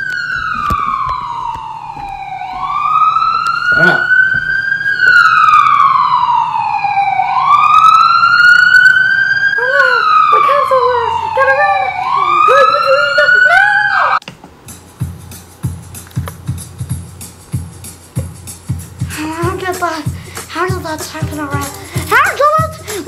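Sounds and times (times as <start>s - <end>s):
siren wailing: 0.0s - 14.2s.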